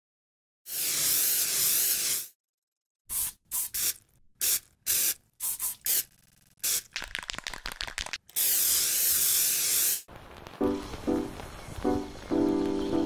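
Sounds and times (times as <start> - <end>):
spray-paint can hissing: 0.7 - 2.4, 3.1 - 10.1.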